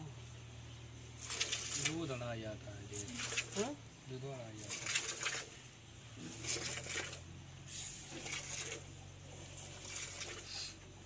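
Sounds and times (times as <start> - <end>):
milk squirting into plastic jug: 8.0 - 8.9, 9.6 - 10.8.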